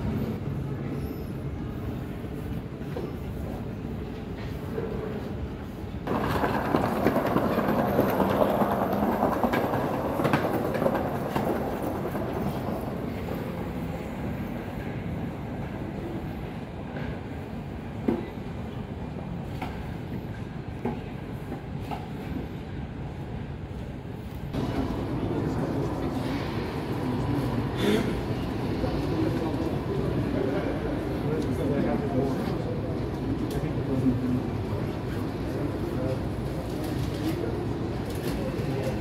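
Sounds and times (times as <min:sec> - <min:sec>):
train running gear rushing: 0:06.0 - 0:13.9.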